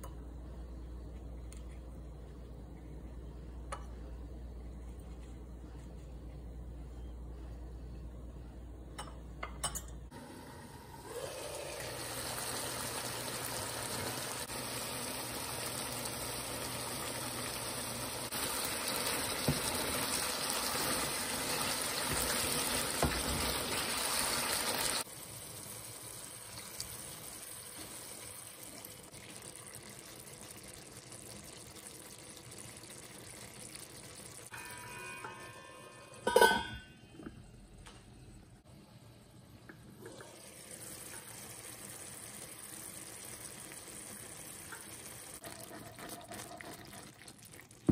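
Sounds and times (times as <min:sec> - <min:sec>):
curry sizzling in a frying pan: 0:11.6 - 0:34.8, 0:40.3 - 0:47.9.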